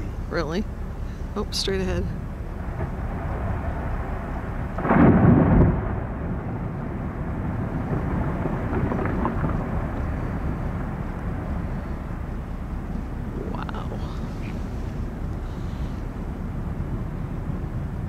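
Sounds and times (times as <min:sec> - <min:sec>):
low background rumble: 0:00.0 - 0:18.0
ice calving boom: 0:02.7 - 0:11.6.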